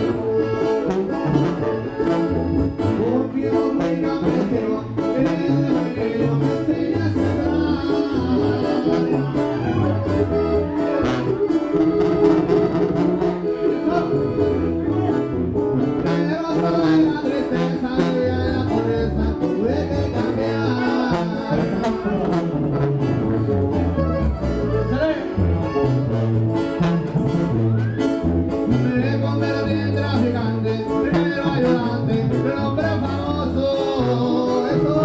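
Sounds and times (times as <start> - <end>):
guitars: 0.0 - 35.0
sousaphone bass line: 0.0 - 35.0
person singing: 0.8 - 10.1, 16.0 - 22.3, 28.7 - 35.0.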